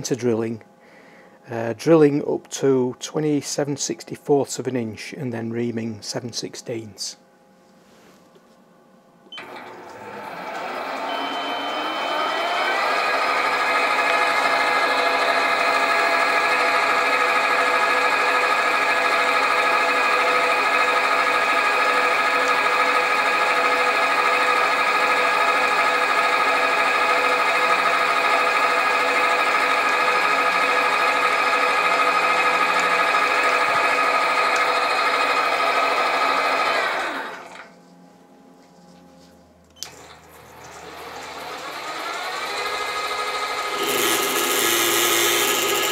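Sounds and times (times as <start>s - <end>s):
drill cutting brass: 9.4s - 37.1s, 40.8s - 45.9s
bench lathe whining: 9.4s - 37.7s, 39.8s - 45.9s
drill bit cutting brass: 41.6s - 45.9s.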